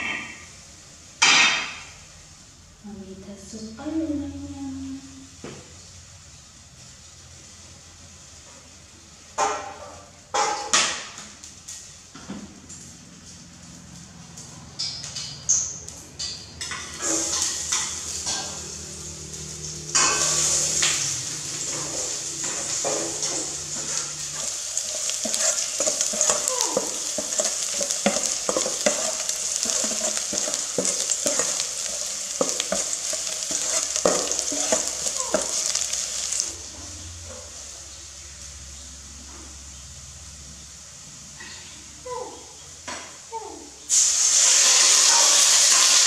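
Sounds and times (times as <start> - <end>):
garlic sizzling in hot oil: 16.6 - 43.2, 43.8 - 46.0.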